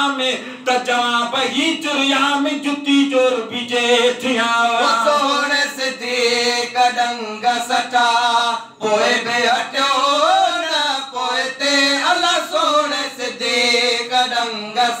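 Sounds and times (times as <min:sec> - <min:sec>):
man singing devotional chant: 0:00.0 - 0:15.0.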